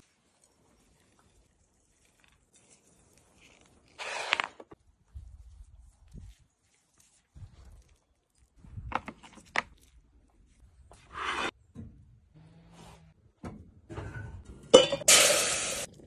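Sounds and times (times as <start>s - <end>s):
gas burner hissing: 15.1s - 15.9s.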